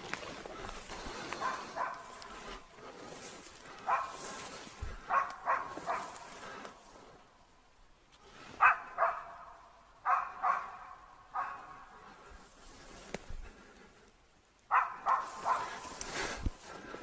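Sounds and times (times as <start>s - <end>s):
dog barking: 1.4s - 2.6s, 3.8s - 6.6s, 8.6s - 12.1s, 14.7s - 15.8s.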